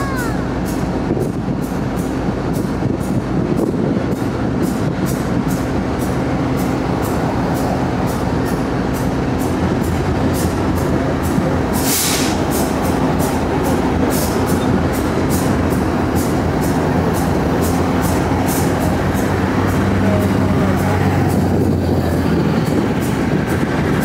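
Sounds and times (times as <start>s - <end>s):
diesel locomotive engines running: 0.0s - 24.0s.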